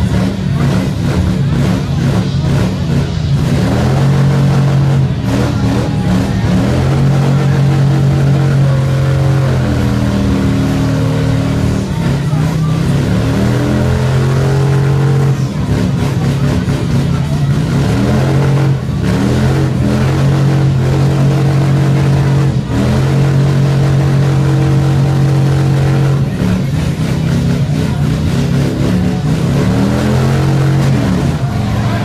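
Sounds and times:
motorcycle engine revving: 0.0s - 32.0s.

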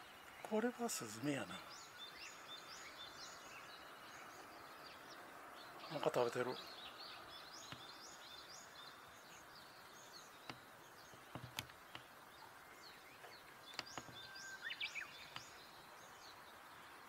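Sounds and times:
faint steady hiss: 0.0s - 17.0s
songbirds chirping: 0.0s - 17.0s
sharp clicks: 11.3s - 12.1s, 13.7s - 14.2s.

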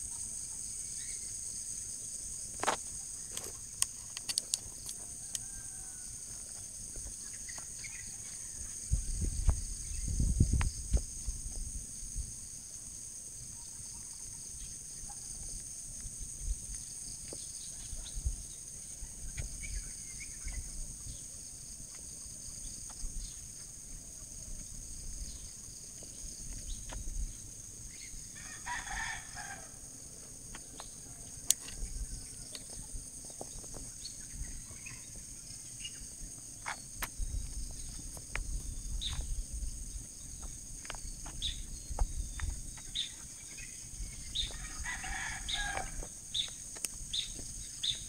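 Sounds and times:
rooster crowing: 5.0s - 6.5s, 28.4s - 29.9s, 44.4s - 46.1s.

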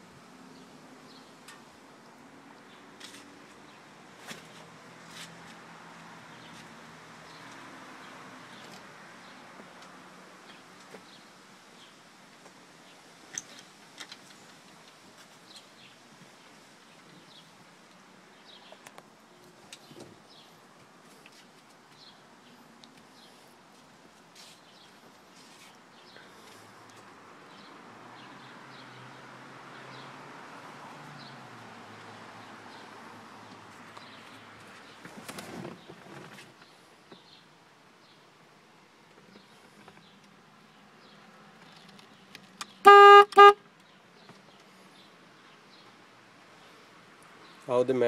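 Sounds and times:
small birds chirping: 12.8s - 29.2s, 33.8s - 48.0s.

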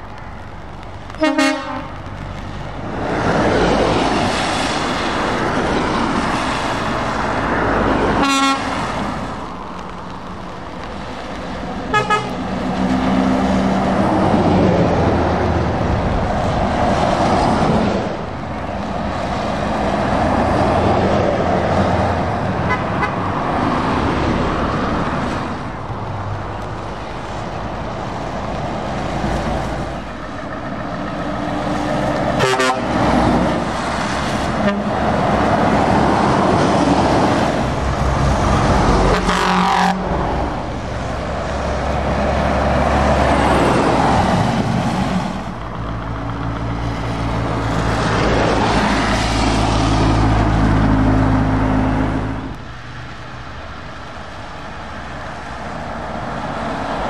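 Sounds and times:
lorries driving past: 0.0s - 57.0s
tyres hissing on wet road: 0.0s - 57.0s
truck horn toot: 1.2s - 2.0s, 8.2s - 8.8s, 11.9s - 12.4s, 22.7s - 23.2s, 32.4s - 33.0s, 34.6s - 35.0s, 39.1s - 40.0s.

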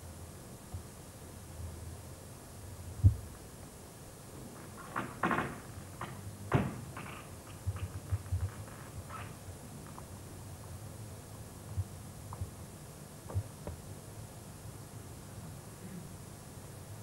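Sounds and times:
sharp knocks: 4.7s - 8.6s
heavy thump: 5.0s - 7.2s.

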